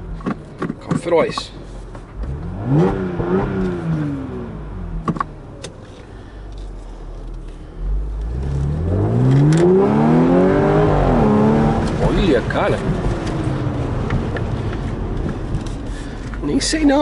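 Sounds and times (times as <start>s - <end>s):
car engine revving: 2.2s - 5.6s, 7.8s - 16.7s.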